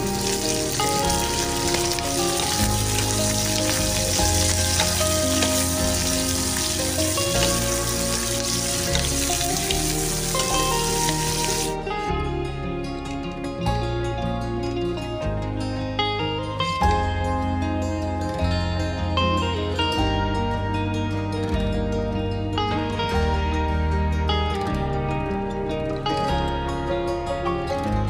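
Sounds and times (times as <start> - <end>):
food sizzling in a hot pan: 0.0 - 11.8
background music: 0.0 - 28.0.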